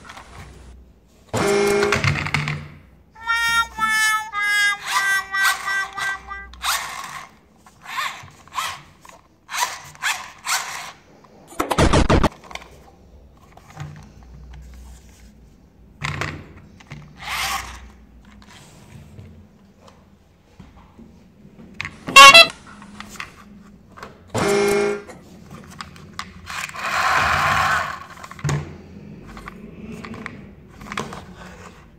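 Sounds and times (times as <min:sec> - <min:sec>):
plastic toy train rattling: 0:03.2 - 0:11.0, 0:22.2 - 0:23.4, 0:25.6 - 0:28.5, 0:29.2 - 0:31.8
short electronic tune: 0:22.2 - 0:22.5.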